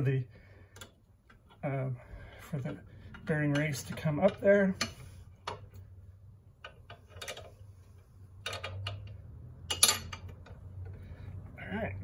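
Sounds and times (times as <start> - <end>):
metal tool clicking and clinking: 8.4 - 10.5.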